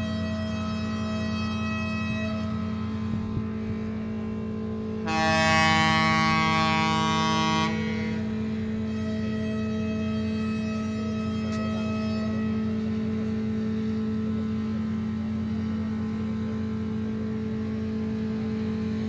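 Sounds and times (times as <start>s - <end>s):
low hum of ship engines: 0.0s - 19.0s
ship's horn blast: 0.0s - 19.0s.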